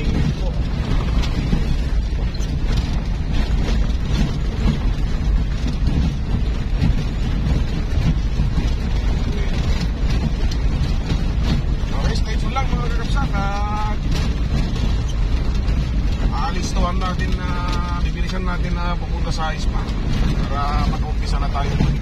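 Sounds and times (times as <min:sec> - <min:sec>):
vehicle rumbling over stones: 0:00.0 - 0:22.0
wind buffeting microphone: 0:00.0 - 0:22.0.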